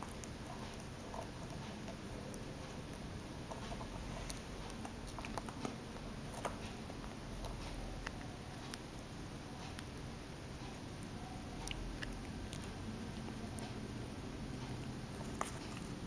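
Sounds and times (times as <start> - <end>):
chinchilla teeth clicking: 0.0 - 13.8.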